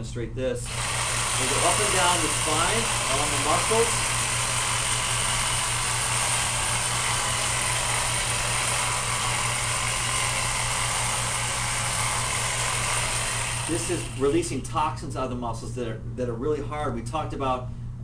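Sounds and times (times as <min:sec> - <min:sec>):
jigsaw motor buzzing: 0:00.6 - 0:14.6.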